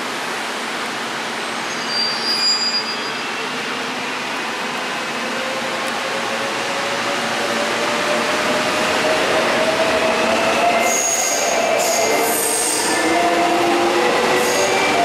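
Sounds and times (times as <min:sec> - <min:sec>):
high-pitched wheel squeals: 0:01.7 - 0:03.4.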